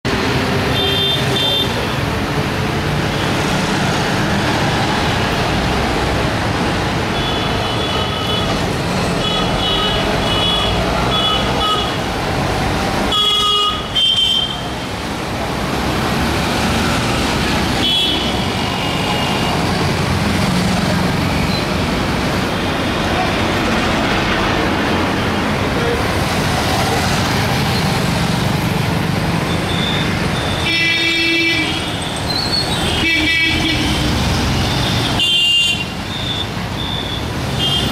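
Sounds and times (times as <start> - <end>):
busy street traffic: 0.0 - 37.9
vehicle horns honking: 0.7 - 1.8, 9.2 - 12.0, 13.1 - 14.7, 17.8 - 19.6, 32.8 - 37.9.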